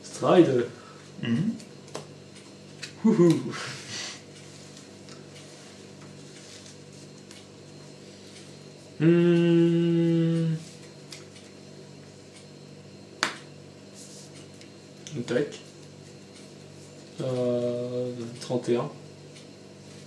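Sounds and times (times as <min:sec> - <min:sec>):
person humming: 0:09.0 - 0:10.8.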